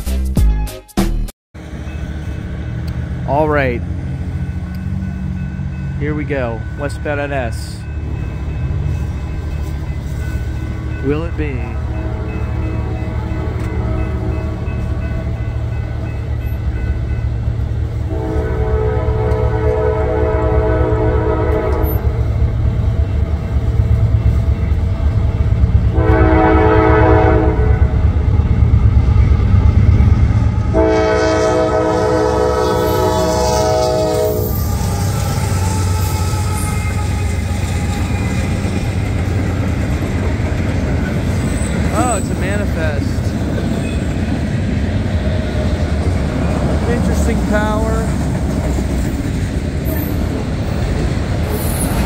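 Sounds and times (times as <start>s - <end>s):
diesel locomotives rumbling: 1.6s - 52.0s
locomotive air horn blasts: 11.9s - 14.8s, 18.0s - 22.2s, 25.9s - 28.0s, 30.7s - 38.6s.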